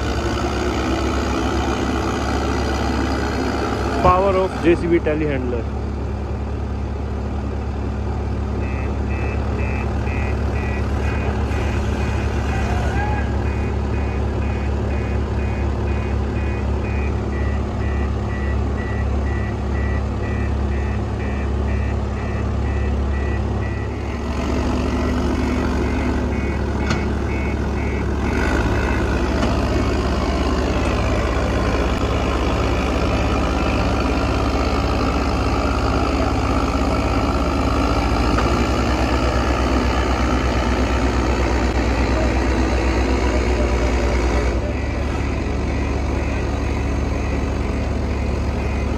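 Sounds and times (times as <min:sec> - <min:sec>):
diesel engine working under load: 0:00.0 - 0:48.9
reversing alarm beeping: 0:08.6 - 0:24.2, 0:24.9 - 0:32.2, 0:44.5 - 0:48.9.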